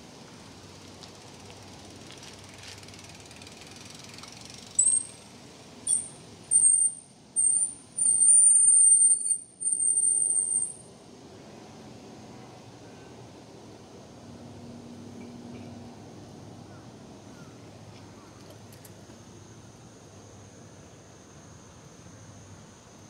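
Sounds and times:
bicycle brakes squealing: 0:02.4 - 0:05.2, 0:05.8 - 0:10.9.

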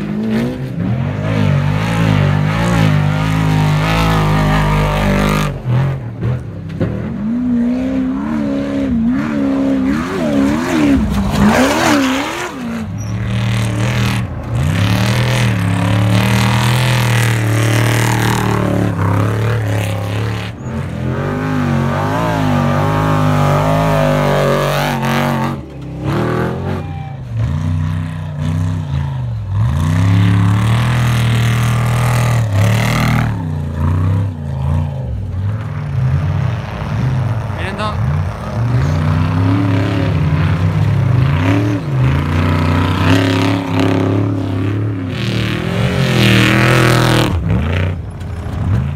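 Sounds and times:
race trucks revving past: 0:00.0 - 0:48.9.

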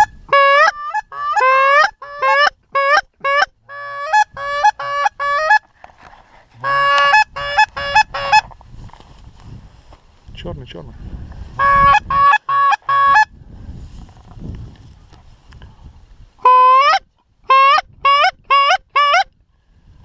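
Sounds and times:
geese honking: 0:06.6 - 0:08.4.

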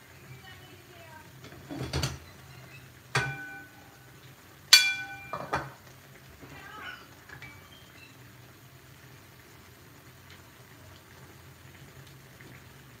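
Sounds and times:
metal cookware clanking: 0:01.4 - 0:02.3, 0:03.1 - 0:04.0, 0:04.7 - 0:05.9, 0:07.3 - 0:07.8.

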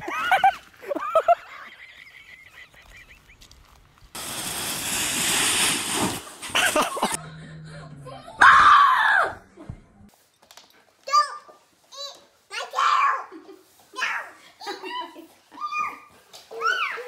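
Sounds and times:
snow tube sliding on snow: 0:04.2 - 0:07.2.

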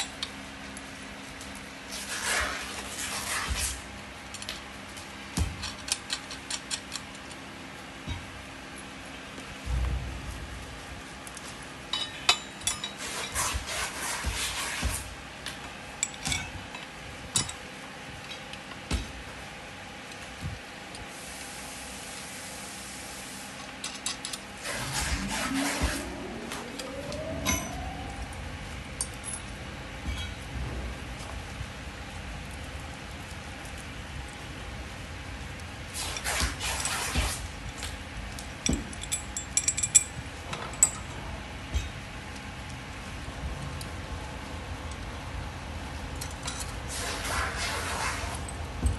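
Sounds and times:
metal parts scraping: 0:12.0 - 0:15.1, 0:23.8 - 0:26.0, 0:36.0 - 0:37.4.

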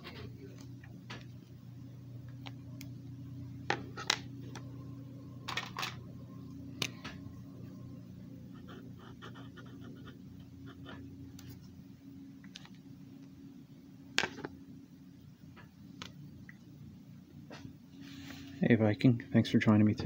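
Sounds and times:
steady low hum: 0:00.0 - 0:20.0
marker scratching on paper: 0:08.5 - 0:11.0.

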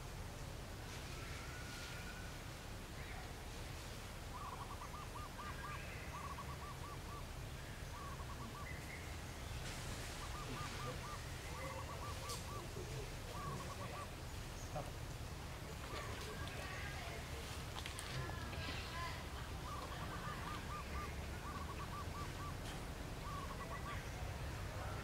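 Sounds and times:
bird hooting calls: 0:04.4 - 0:09.0, 0:10.0 - 0:15.0, 0:18.2 - 0:25.0.

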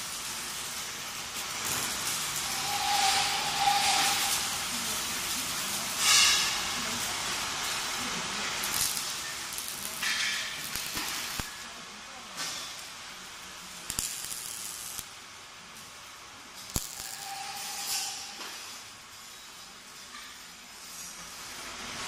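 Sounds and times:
steady hiss: 0:00.0 - 0:22.0
hissing bursts: 0:01.4 - 0:11.6, 0:16.6 - 0:18.8.

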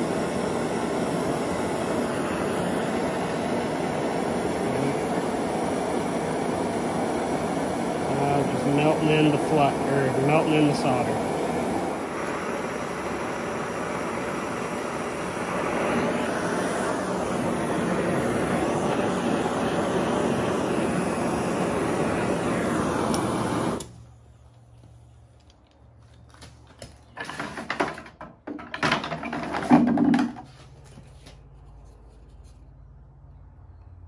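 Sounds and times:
gas torch hissing: 0:00.0 - 0:24.4.

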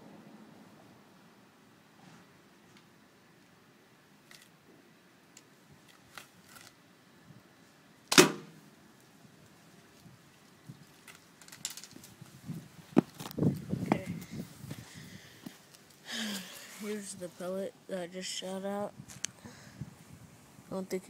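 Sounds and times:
slingshot firing crack: 0:08.1 - 0:08.6
faint clicks and rustles: 0:09.0 - 0:17.4.

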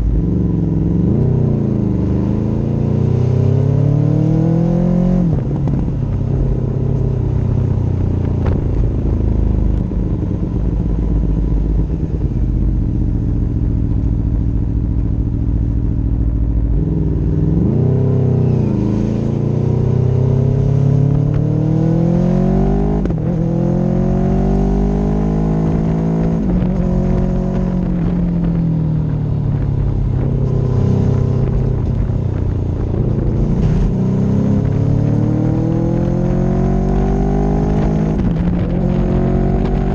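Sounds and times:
motorcycle engine accelerating: 0:00.0 - 0:39.9
wind and road noise: 0:00.0 - 0:39.9.

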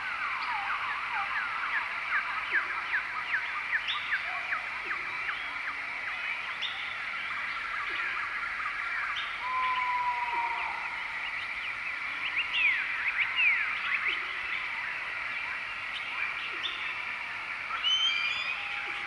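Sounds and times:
birds chirping and whistling: 0:17.8 - 0:19.0.

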